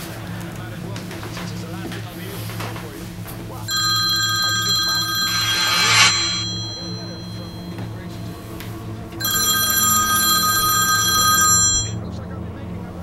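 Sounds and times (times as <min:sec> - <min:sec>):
mobile phone ringtone: 0:03.7 - 0:08.1, 0:09.2 - 0:12.0.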